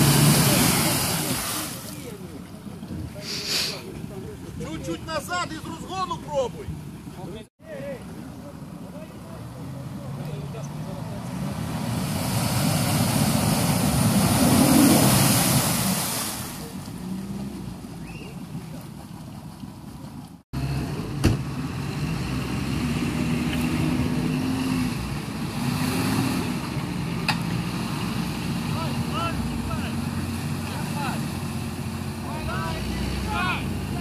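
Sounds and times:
suv engine revving in mud: 0.0 - 2.1, 9.5 - 18.6, 20.6 - 34.0
mud and water spraying: 0.0 - 2.3, 10.8 - 20.2.

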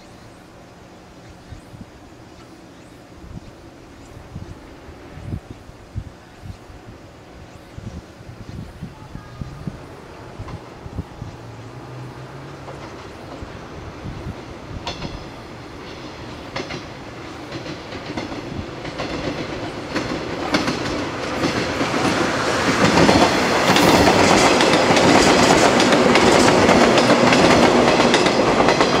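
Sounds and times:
train rolling past: 0.0 - 29.0
wheels clicking over rail joints: 10.4 - 29.0.

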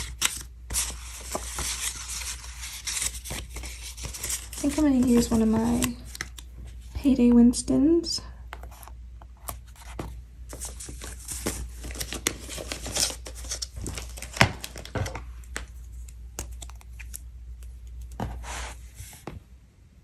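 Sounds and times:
paper crinkling and rustling: 0.0 - 6.9, 8.6 - 17.2.

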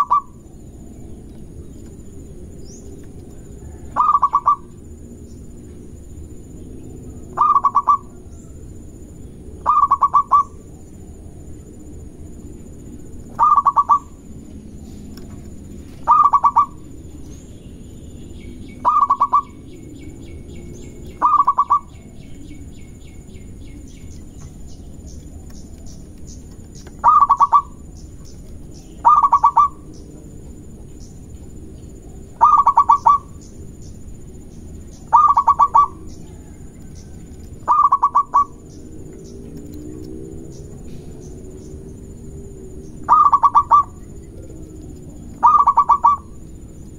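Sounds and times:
dove cooing: 0.0 - 0.5, 3.2 - 5.2, 7.0 - 8.5, 9.6 - 10.9, 13.3 - 14.2, 15.9 - 17.0, 18.8 - 22.6, 26.6 - 28.0, 28.8 - 30.3, 32.2 - 33.4, 35.0 - 41.4, 42.6 - 46.6
high chirping trill: 7.4 - 8.1, 18.8 - 19.9, 20.7 - 22.2, 28.8 - 29.9, 34.9 - 36.2, 37.6 - 38.9, 42.9 - 44.1, 45.4 - 46.4.

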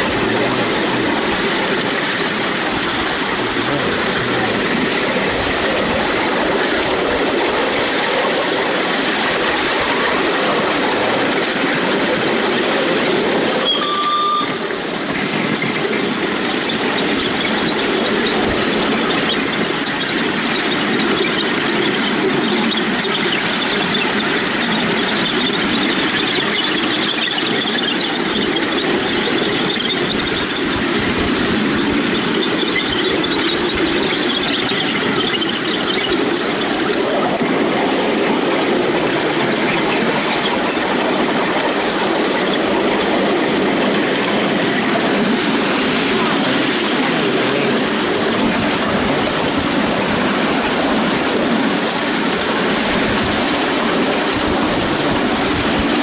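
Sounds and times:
train wheels on rail: 0.0 - 56.0
brief high squeal: 13.6 - 14.8.

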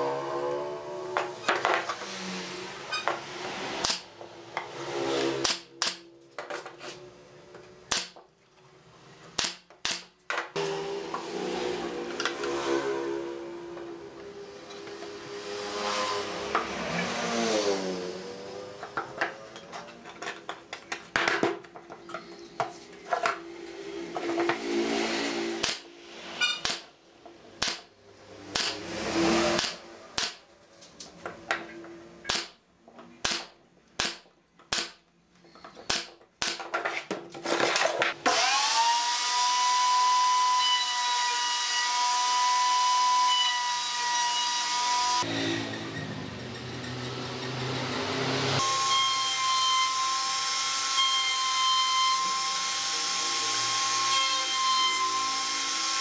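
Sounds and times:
nail gun shots: 7.9 - 8.2, 9.4 - 10.1, 25.6 - 25.8, 27.6 - 27.9, 29.6 - 30.4, 32.3 - 32.6, 33.2 - 35.0
router motor whine: 38.2 - 45.4, 48.6 - 56.0.

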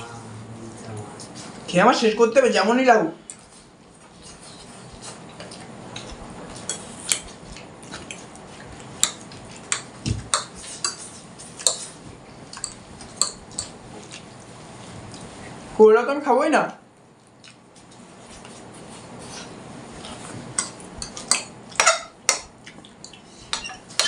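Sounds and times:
eating noises: 3.2 - 15.7, 17.1 - 24.0.

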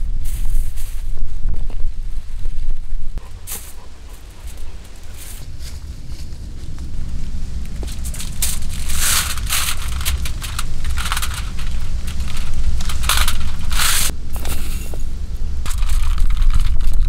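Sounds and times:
aluminium foil crinkling: 4.4 - 14.1, 15.6 - 17.0.

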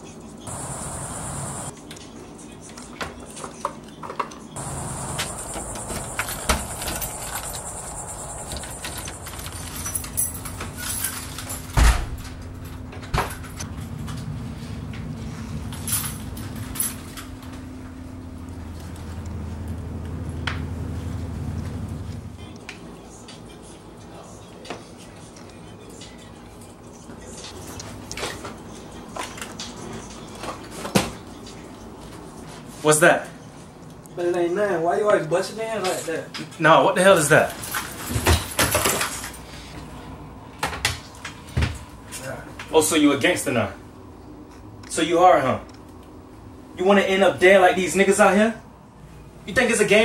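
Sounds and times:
door opening: 4.6 - 13.7
footsteps: 4.7 - 11.4
keys jangling in a lock: 5.8 - 13.6, 15.7 - 17.3
door shutting thump: 11.8 - 12.3.

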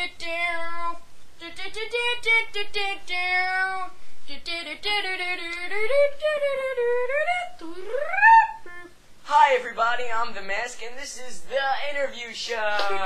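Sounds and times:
high voice singing unaccompanied: 0.0 - 9.6.

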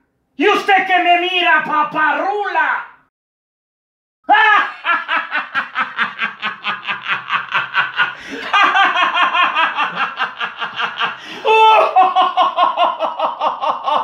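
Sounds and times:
person laughing: 4.3 - 14.0.

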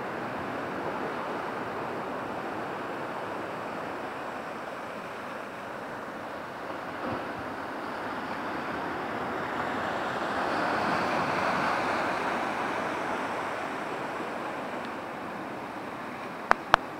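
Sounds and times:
sea surf breaking over rocks: 0.0 - 16.9.

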